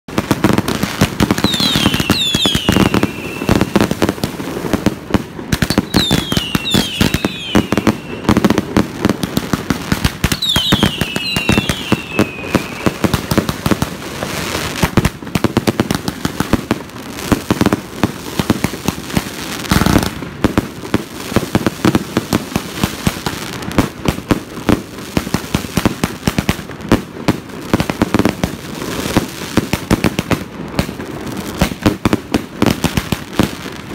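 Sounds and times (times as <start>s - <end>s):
fireworks popping and crackling: 0.1s - 33.9s
falling firework whistles: 0.9s - 4.9s, 5.5s - 9.2s, 10.2s - 14.8s, 19.6s - 20.2s.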